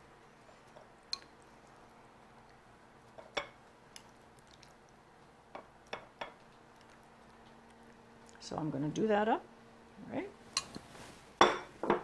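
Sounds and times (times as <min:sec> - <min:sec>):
wet squishes of food: 0:00.6 - 0:08.6.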